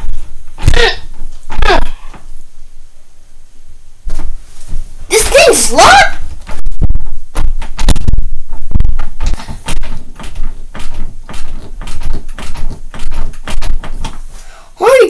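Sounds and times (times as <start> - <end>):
doorknob rattling and clicking: 9.2 - 14.3.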